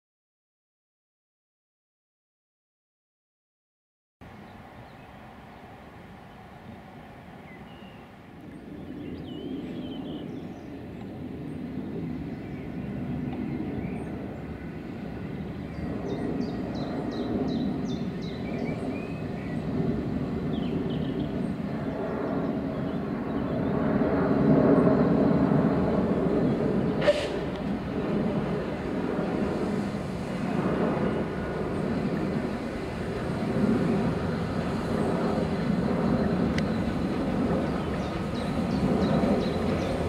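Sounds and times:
steam locomotive rumble: 25.7 - 40.0
birds chirping faintly: 30.9 - 40.0.

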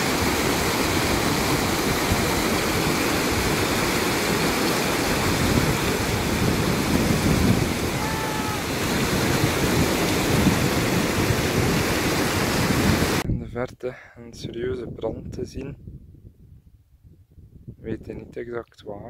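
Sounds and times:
whitewater rushing over rocks: 0.0 - 13.2.

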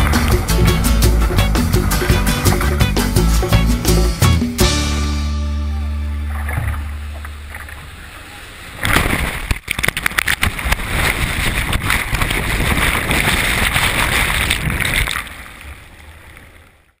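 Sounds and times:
wind buffeting microphone: 0.0 - 3.5, 8.8 - 15.4
surf rushing and splashing: 0.0 - 4.7, 6.1 - 17.0.

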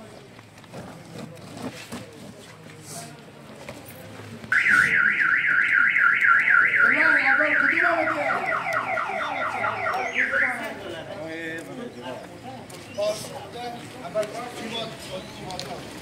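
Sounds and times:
car alarm siren: 4.6 - 10.8.

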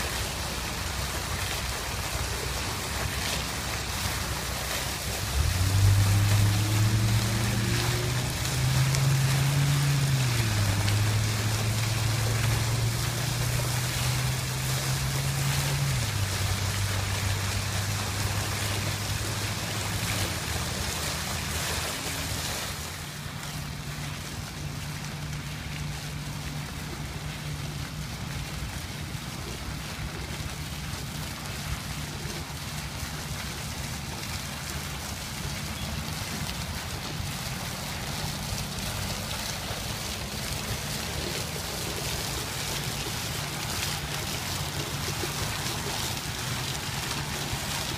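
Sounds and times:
fountain water splashing: 0.0 - 47.9
low hum changing pitch: 5.2 - 17.2.

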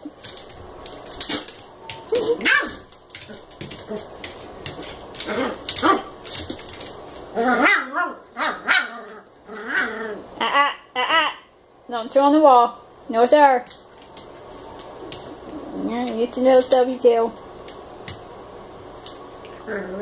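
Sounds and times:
small dogs barking and yipping: 1.3 - 4.0, 5.2 - 6.3, 7.4 - 11.4
dogs growling in play: 5.1 - 6.2, 7.3 - 10.6, 19.4 - 20.0.

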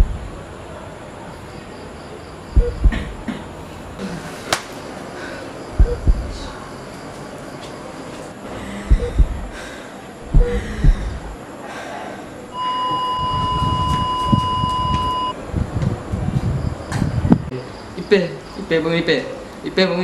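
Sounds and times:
low thumps: 0.0 - 0.4, 2.6 - 3.3, 5.8 - 6.5, 8.9 - 9.6, 10.2 - 11.4
steady electronic beep: 2.6 - 3.0, 5.8 - 6.3, 8.9 - 9.4, 12.5 - 15.4.

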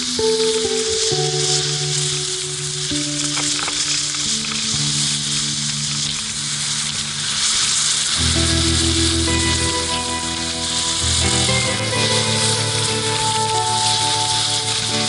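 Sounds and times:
background music with held notes: 0.0 - 15.0
snowboard scraping over snow: 6.6 - 15.0.

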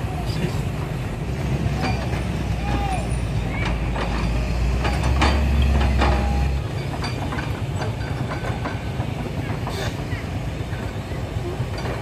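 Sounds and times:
excavator engine droning: 0.0 - 12.0
metallic clanks: 1.8 - 11.0, 11.6 - 12.0.

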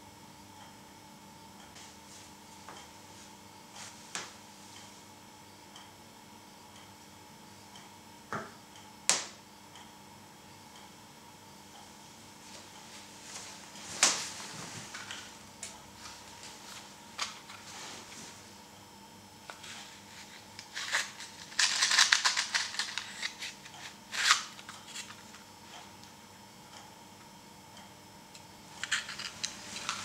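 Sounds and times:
rapid clicking and rustling: 20.2 - 23.5
hard plastic parts clicking: 20.7 - 23.5.

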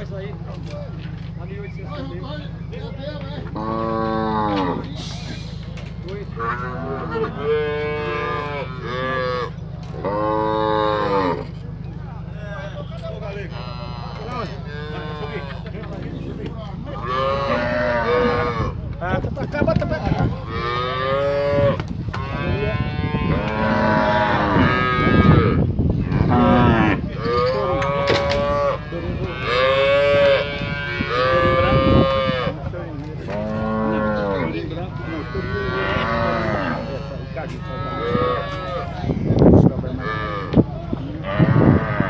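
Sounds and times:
cattle mooing and bawling: 3.5 - 5.1, 6.4 - 11.5, 13.5 - 15.8, 16.9 - 18.8, 20.5 - 39.2, 39.8 - 42.0.

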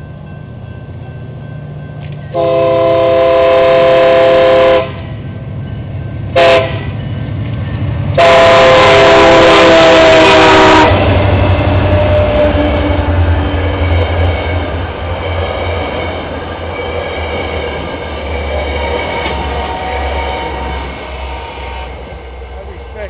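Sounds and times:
locomotive engine and wheel rumble: 0.0 - 23.0
locomotive air horn blasts: 2.3 - 5.0, 6.4 - 6.9, 8.2 - 11.2.

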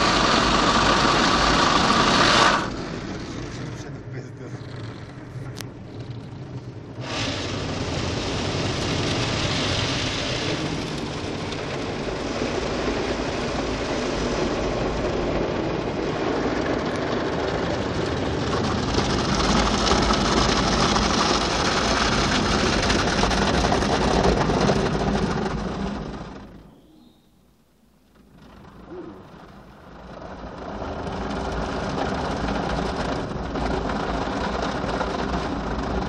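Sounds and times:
water spraying: 0.0 - 2.8, 7.0 - 16.6.

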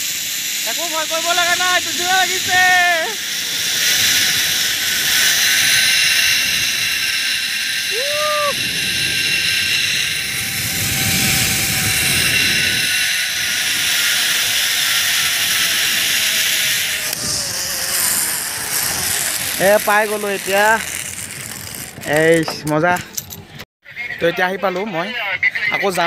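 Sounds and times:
zip-line pulleys whirring on cable: 0.0 - 22.5.

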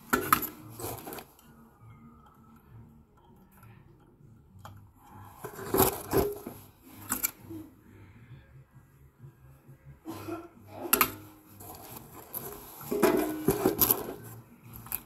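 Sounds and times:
rustling and scraping: 0.0 - 1.6, 5.1 - 7.7, 10.2 - 15.0.

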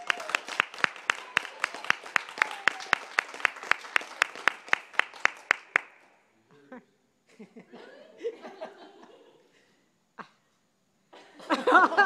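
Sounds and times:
close hands clapping: 0.0 - 6.2
group applause: 0.0 - 6.2.

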